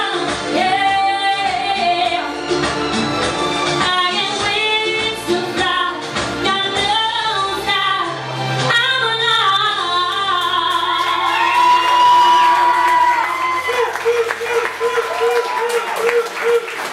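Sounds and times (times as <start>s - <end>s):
woman singing pop song: 0.0s - 2.8s, 3.7s - 13.1s
musical accompaniment: 0.0s - 16.9s.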